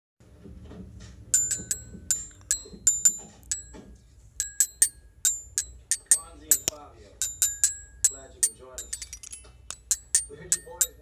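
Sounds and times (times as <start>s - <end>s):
faint background music: 0.2s - 11.0s
sharp metallic clicks: 4.4s - 11.0s.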